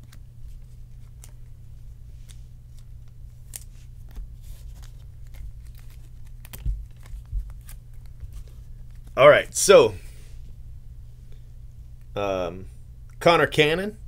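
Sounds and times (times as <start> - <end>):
steady low hum: 0.0 - 14.0
trading cards clicking and sliding: 2.1 - 9.2.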